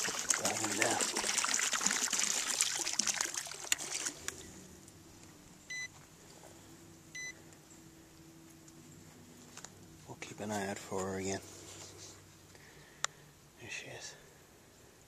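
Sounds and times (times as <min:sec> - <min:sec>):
water splashing and trickling: 0:00.0 - 0:04.6
short electronic beeps: 0:05.7 - 0:05.9, 0:07.2 - 0:07.4.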